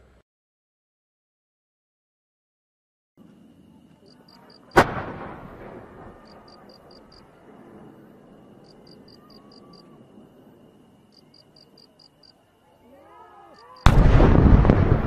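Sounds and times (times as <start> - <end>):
firework mortar boom: 4.8 - 6.6, 13.8 - 15.0.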